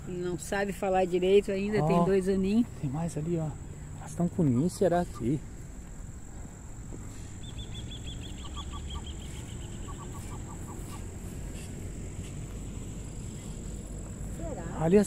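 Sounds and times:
faint high insect whine: 0:00.0 - 0:15.0
lower clipped bird notes: 0:07.0 - 0:14.0.

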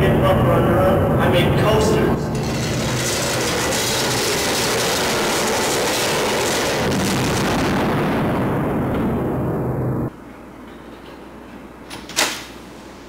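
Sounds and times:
loud rumbling roar: 0:02.1 - 0:10.1.

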